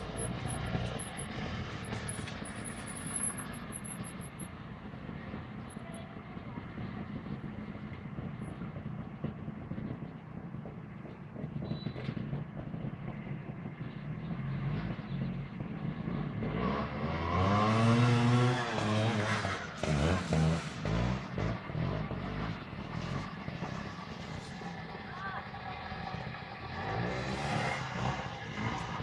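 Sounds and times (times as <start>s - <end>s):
motorcycle engines revving: 0.0s - 29.0s.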